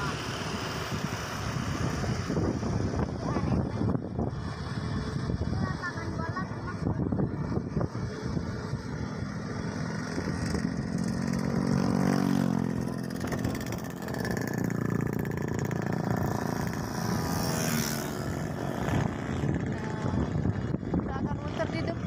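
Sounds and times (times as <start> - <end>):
motorcycle engine running: 0.0 - 22.0
rushing wind: 0.0 - 22.0.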